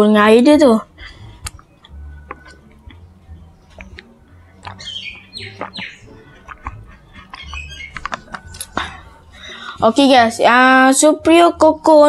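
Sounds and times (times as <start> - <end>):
high squeaky chirps: 1.6 - 9.6.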